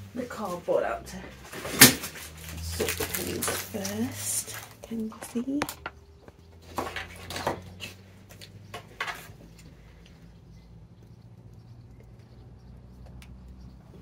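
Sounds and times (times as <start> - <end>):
low steady hum: 0.0 - 14.0
plastic packaging crinkling: 1.5 - 5.6.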